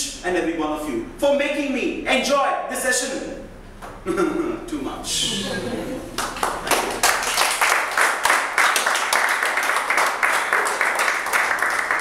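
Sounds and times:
hands clapping: 0:06.2 - 0:12.0.

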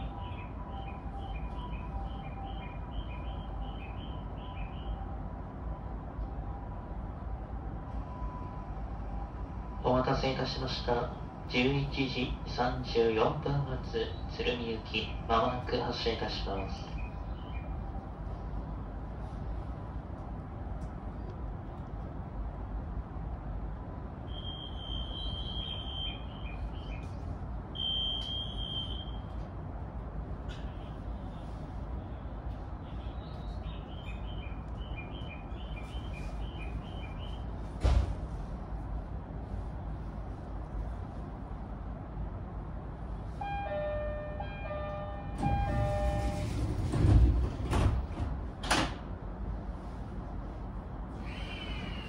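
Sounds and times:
electric train humming: 0:00.0 - 0:37.6, 0:38.7 - 0:52.0
electronic warning beeps: 0:24.3 - 0:27.0, 0:27.7 - 0:29.3, 0:43.4 - 0:46.6
train doors sliding shut: 0:35.9 - 0:38.6, 0:44.8 - 0:49.2.

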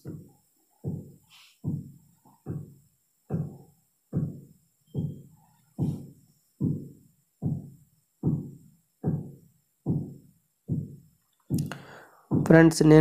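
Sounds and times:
low drum-like beat: 0:06.6 - 0:11.7, 0:12.3 - 0:12.8.

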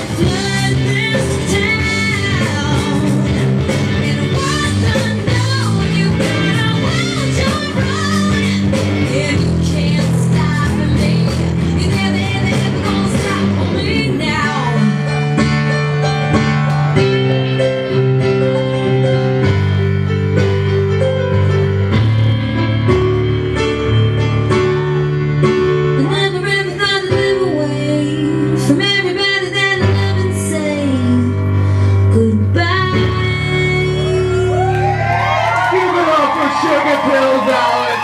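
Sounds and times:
song over nightclub sound system: 0:32.2 - 0:38.0.

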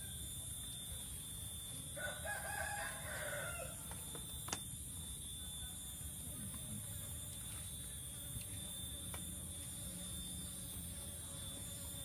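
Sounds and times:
rooster crowing: 0:02.0 - 0:03.9.

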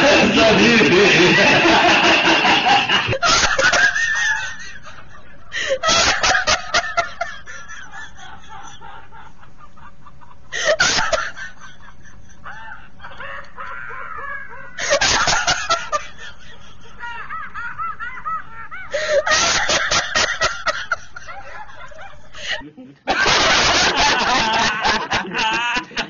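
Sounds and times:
woman laughing uncontrollably: 0:00.0 - 0:26.0.

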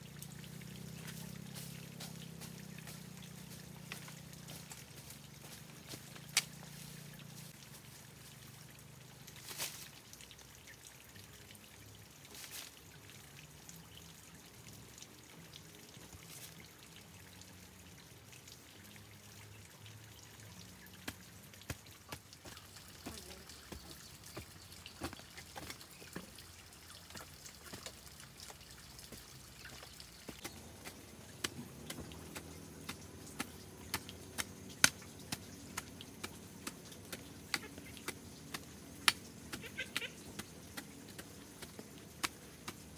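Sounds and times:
water dripping and trickling: 0:00.0 - 0:42.9
small ticks: 0:27.2 - 0:42.9.

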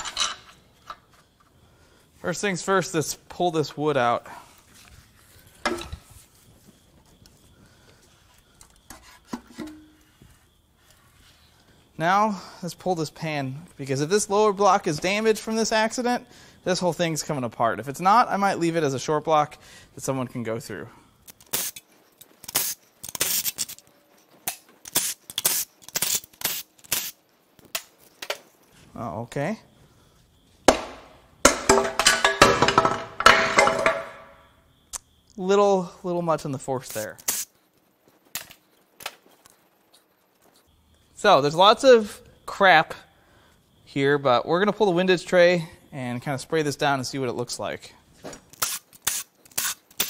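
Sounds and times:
wooden block knocking on metal: 0:30.7 - 0:34.3
ratchet wrench clicking: 0:48.5 - 0:50.0.

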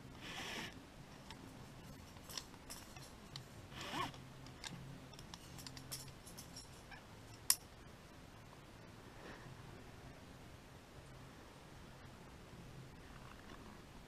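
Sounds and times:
metallic clinks of carabiners: 0:01.2 - 0:07.7.

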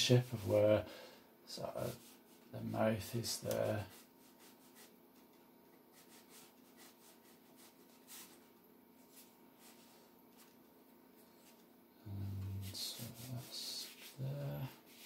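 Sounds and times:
low steady hum: 0:00.0 - 0:15.0
brush strokes on paper: 0:01.8 - 0:05.3, 0:05.9 - 0:10.6, 0:12.2 - 0:15.0.

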